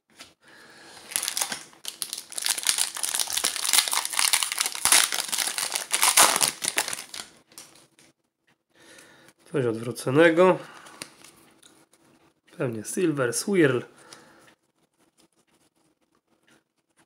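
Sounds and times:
foil wrapper crinkling and tearing: 1.0 - 7.8.

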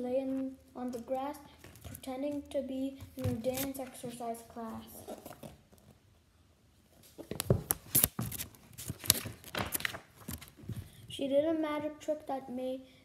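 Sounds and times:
paper pages crackling and rustling: 0.9 - 2.5, 3.1 - 5.9, 7.2 - 10.9.

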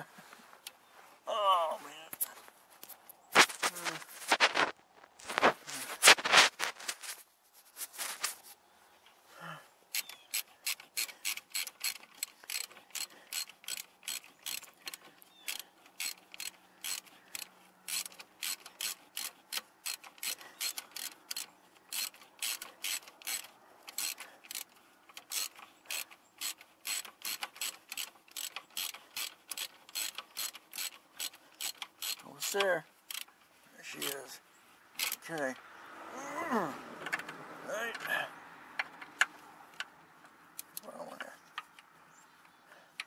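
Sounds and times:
ratchet wrench clicking: 9.9 - 33.3, 35.0 - 35.4.

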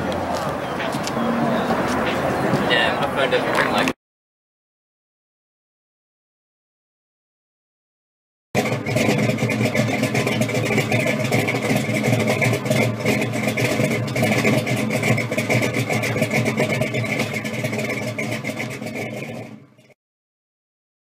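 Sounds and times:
car engine idling roughly: 8.6 - 20.0.

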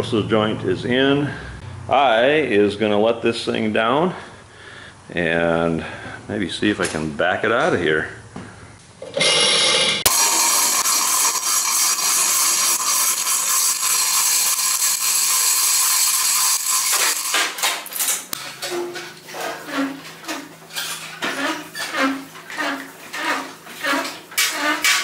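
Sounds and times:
hoist chain rattling: 10.1 - 18.3.

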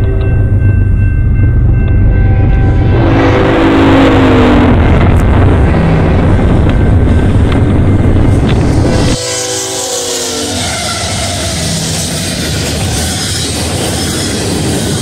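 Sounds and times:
freight train rumbling past: 0.0 - 15.0
train horn chord: 1.9 - 6.8, 8.8 - 13.4.

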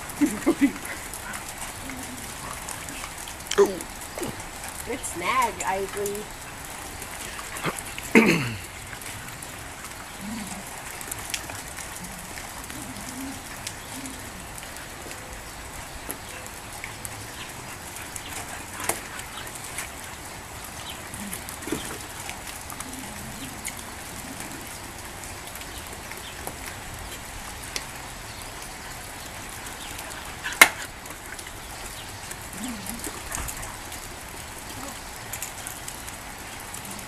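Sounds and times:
steady outdoor hiss: 0.0 - 37.0.

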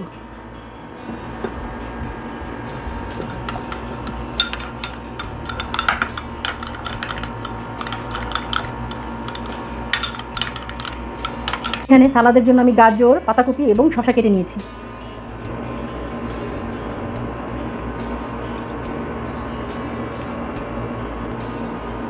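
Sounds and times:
spoon clinking against plate: 3.1 - 11.9.

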